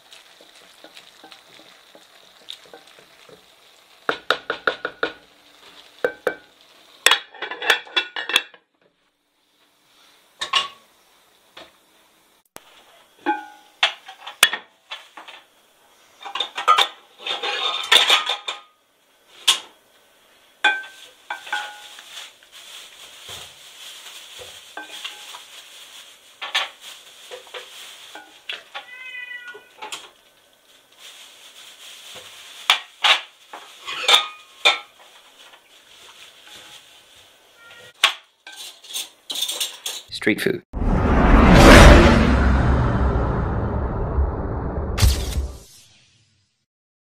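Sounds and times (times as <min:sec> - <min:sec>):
bowl scraping against pot: 0:17.2 - 0:18.0.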